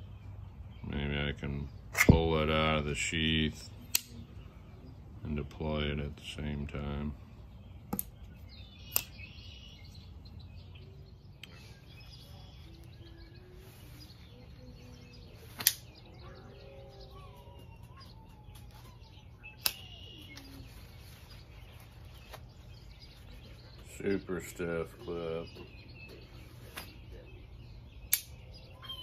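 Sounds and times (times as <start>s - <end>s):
faint birdsong: 0.0s - 29.0s
low steady hum: 0.0s - 29.0s
folding knife clicks: 3.9s - 4.2s, 8.9s - 9.2s, 15.6s - 15.8s, 19.6s - 19.8s, 28.1s - 28.3s.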